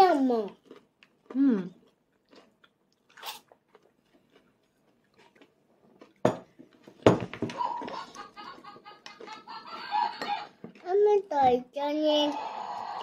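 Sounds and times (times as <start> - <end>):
tableware clatter: 6.2 - 8.1, 9.2 - 10.8.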